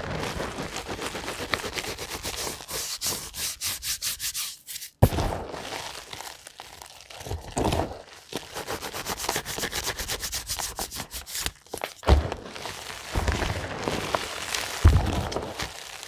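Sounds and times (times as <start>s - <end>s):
fingers rubbing chalk powder: 0.8s - 5.0s, 8.4s - 12.0s.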